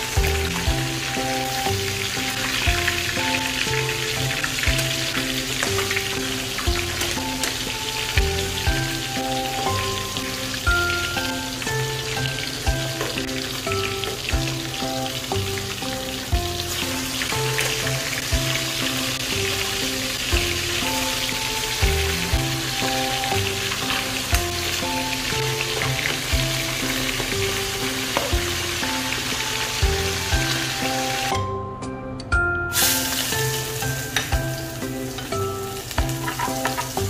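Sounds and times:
fish sizzling in hot oil: 0.0s - 31.4s, 32.7s - 37.0s
background music with beat: 0.0s - 37.0s.

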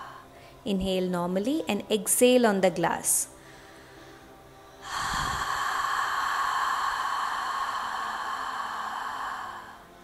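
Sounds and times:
woman exhaling breathily: 4.8s - 9.9s.

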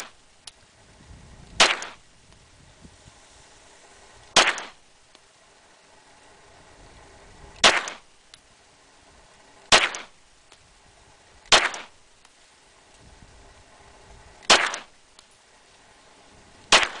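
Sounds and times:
pistol shots: 1.6s - 2.0s, 4.3s - 4.8s, 7.6s - 8.0s, 9.7s - 10.2s, 11.5s - 12.0s, 14.5s - 14.9s, 16.7s - 17.0s.

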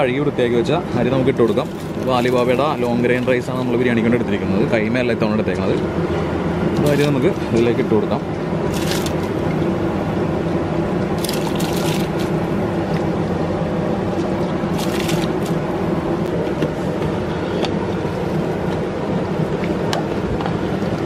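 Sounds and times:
water boiling rumble: 0.0s - 21.0s
rice splashing into water: 8.7s - 9.3s, 11.2s - 12.4s.

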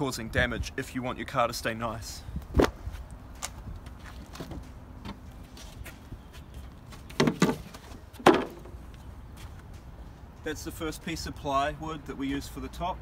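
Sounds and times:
wood scraping against car: 6.9s - 8.8s.

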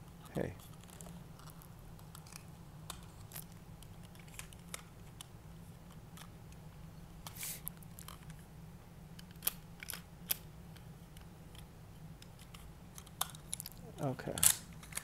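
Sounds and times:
toy parts clicking and tapping: 9.2s - 15.0s.

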